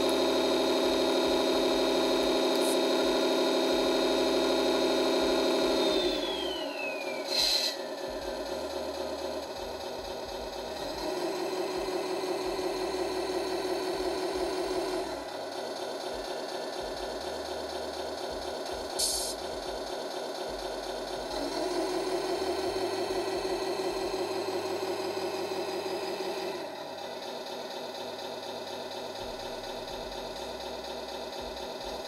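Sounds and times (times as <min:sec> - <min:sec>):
simulated truck engine from speaker: 0:00.0 - 0:32.0
short hiss: 0:19.0 - 0:19.4.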